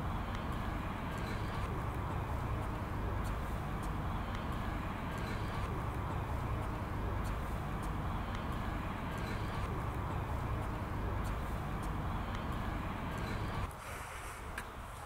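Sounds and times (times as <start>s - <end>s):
low outdoor rumble: 0.0s - 15.0s
hiss: 13.7s - 15.0s.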